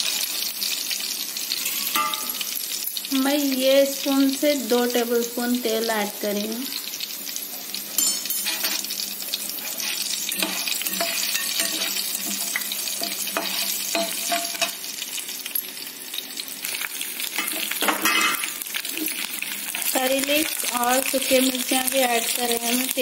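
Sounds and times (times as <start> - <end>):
spices sizzling in hot oil: 0.0 - 23.0
metal spatula stirring: 8.0 - 8.9, 9.5 - 14.8.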